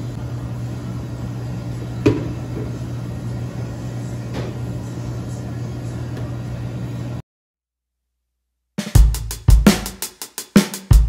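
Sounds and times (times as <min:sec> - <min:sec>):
kitchen equipment humming: 0:00.0 - 0:07.2.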